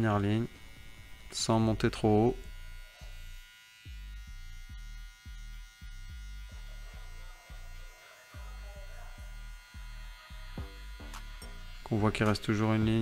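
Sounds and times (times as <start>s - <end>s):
hair clipper buzzing: 0.0s - 13.0s.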